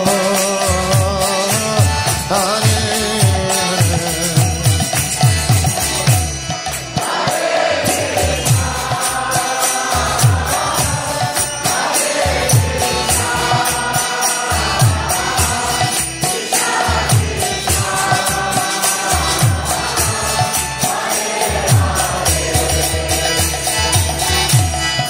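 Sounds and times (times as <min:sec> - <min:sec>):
group of voices chanting: 0:07.0 - 0:23.4.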